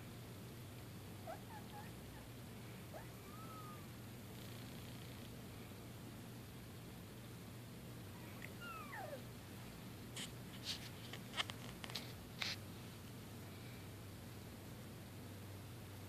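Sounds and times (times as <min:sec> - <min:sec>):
cat mewing: 0:01.2 - 0:02.2, 0:02.9 - 0:04.0, 0:08.4 - 0:09.3
kittens' paws scuffing on bedding: 0:10.1 - 0:12.7.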